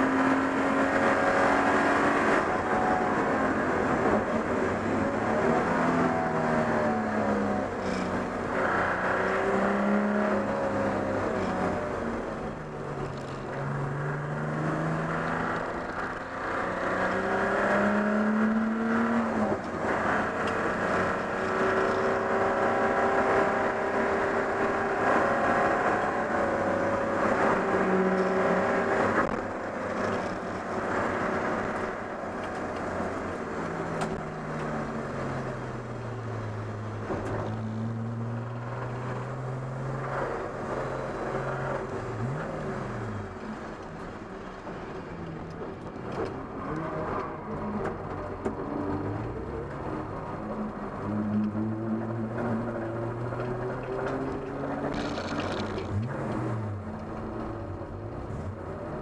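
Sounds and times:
race car engine revving: 0:46.1 - 0:59.0.

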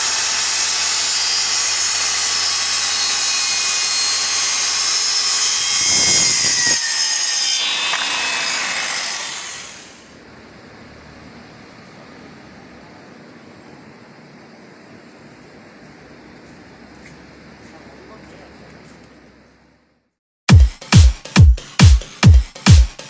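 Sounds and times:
circular saw cutting: 0:00.0 - 0:10.2.

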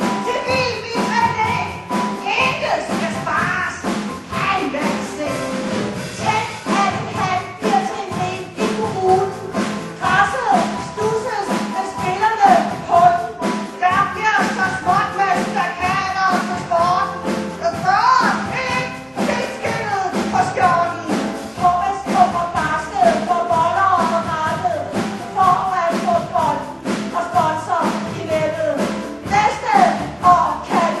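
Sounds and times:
band accompaniment with steady beat: 0:00.0 - 0:31.0
people singing: 0:06.2 - 0:24.6, 0:25.9 - 0:31.0.

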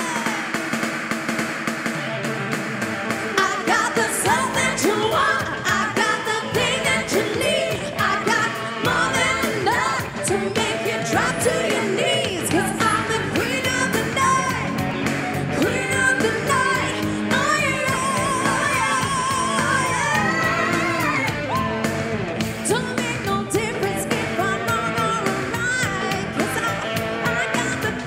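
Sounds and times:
loud amplified music with beat: 0:00.0 - 0:28.0
woman singing into microphone: 0:03.4 - 0:14.8, 0:15.5 - 0:21.2, 0:22.6 - 0:28.0.

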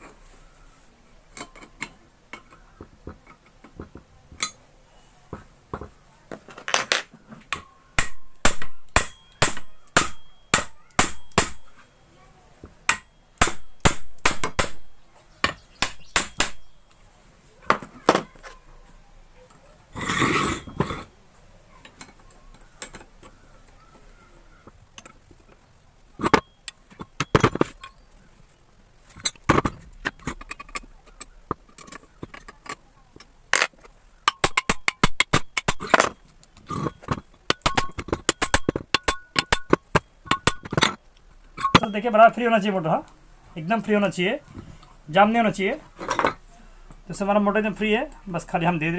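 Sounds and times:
metal parts and tools clinking: 0:01.3 - 0:04.7, 0:06.3 - 0:12.0, 0:12.6 - 0:17.0, 0:26.2 - 0:28.1, 0:29.0 - 0:42.3, 0:46.0 - 0:46.4.

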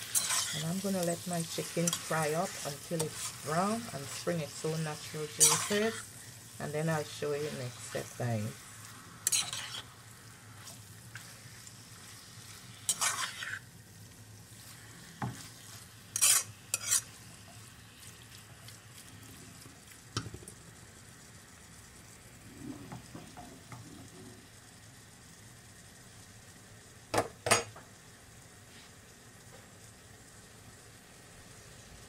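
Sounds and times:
utensil scraping pan: 0:00.0 - 0:06.1, 0:09.2 - 0:10.0, 0:10.6 - 0:13.6, 0:14.7 - 0:17.2
chicken sizzling in pan: 0:00.0 - 0:32.0.

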